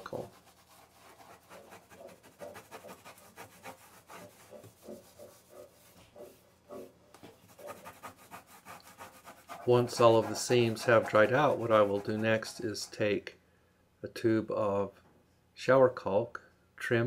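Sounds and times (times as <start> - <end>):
wipe scrubbing shower seam: 0.0 - 13.0.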